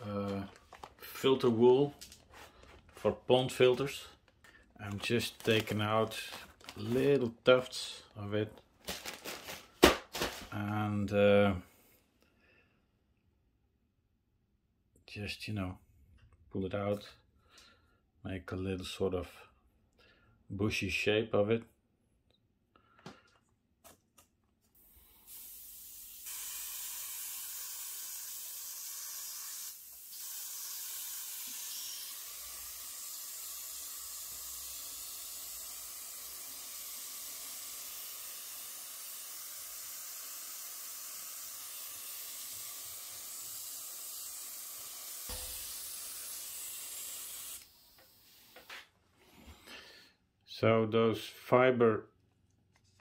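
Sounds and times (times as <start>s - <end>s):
airbrush hissing: 24.8s - 48.9s.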